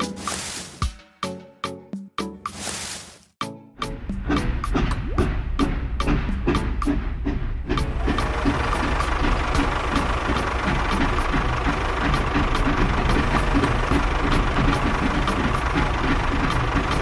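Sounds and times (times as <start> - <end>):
tractor engine knocking: 4.0 - 17.0.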